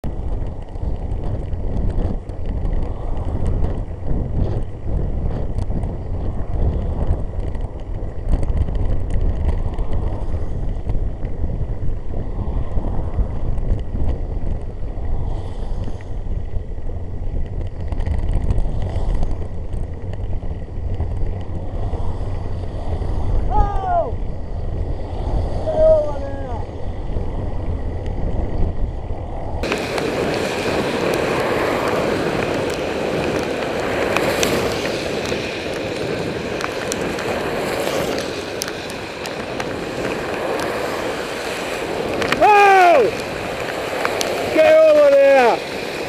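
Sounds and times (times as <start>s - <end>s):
wind noise on microphone: 0.0s - 46.0s
tyres hissing on wet road: 29.6s - 46.0s.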